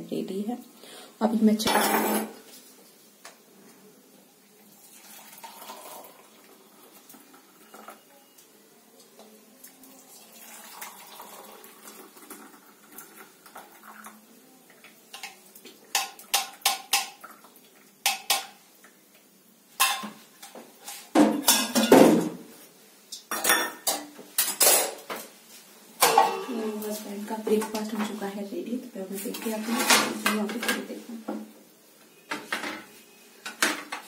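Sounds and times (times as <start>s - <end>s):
metal utensils clinking and clattering: 1.6s - 2.4s, 19.8s - 22.2s, 23.2s - 25.0s, 26.0s - 28.2s.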